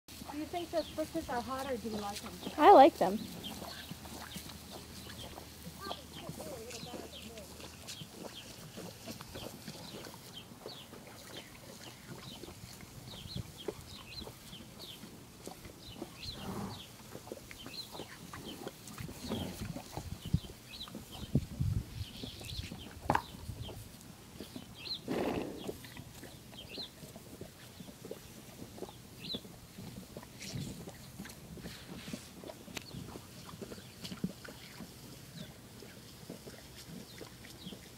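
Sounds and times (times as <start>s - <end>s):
horse slurping water: 0.1s - 37.9s
birds chirping: 0.3s - 21.4s, 22.0s - 23.8s, 24.4s - 27.0s, 27.7s - 29.5s.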